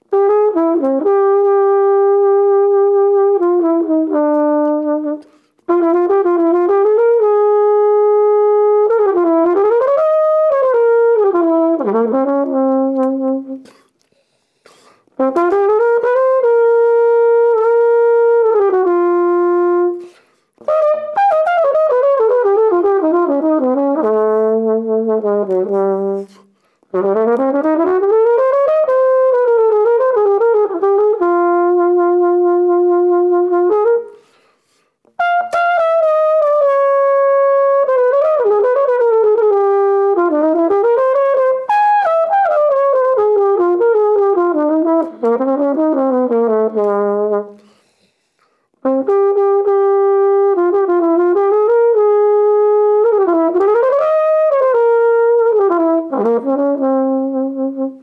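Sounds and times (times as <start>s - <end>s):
solo flugelhorn ballad melody: 0.0s - 14.1s, 14.7s - 58.0s.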